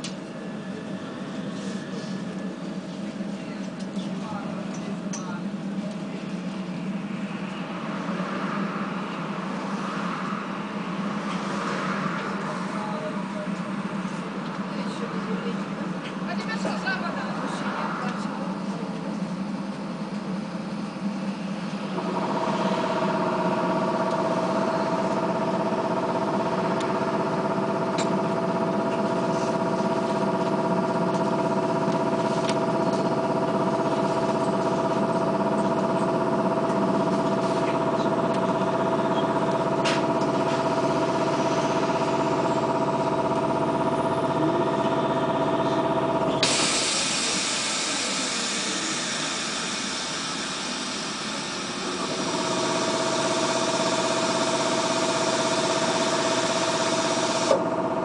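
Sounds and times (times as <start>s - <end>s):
air compressor humming: 18.5s - 58.0s
hiss of released air: 46.4s - 51.6s.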